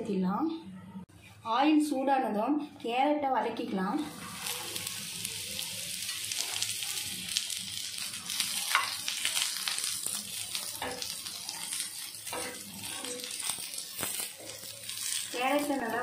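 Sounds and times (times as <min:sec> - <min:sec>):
carrots sizzling in hot oil: 0:04.0 - 0:16.0
spatula scraping and tapping pan: 0:08.6 - 0:09.2, 0:09.8 - 0:15.2.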